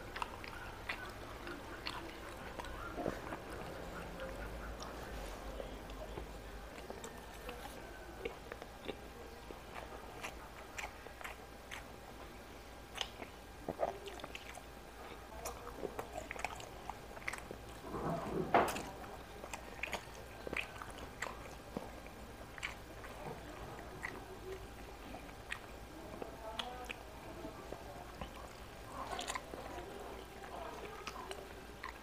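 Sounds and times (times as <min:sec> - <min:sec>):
person chewing and crunching: 0:00.0 - 0:32.0.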